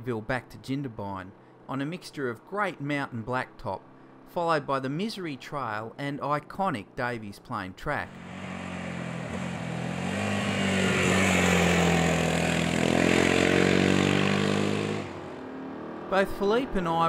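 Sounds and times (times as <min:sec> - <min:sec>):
motorcycle engine running: 0:08.1 - 0:17.0.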